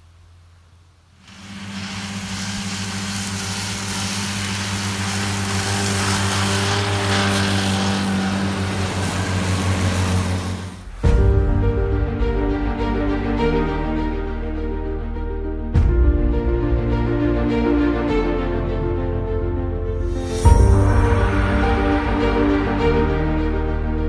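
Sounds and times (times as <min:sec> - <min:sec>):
tractor engine hum: 0:00.0 - 0:11.2
mowing units rushing noise: 0:01.1 - 0:11.1
music: 0:10.8 - 0:24.0.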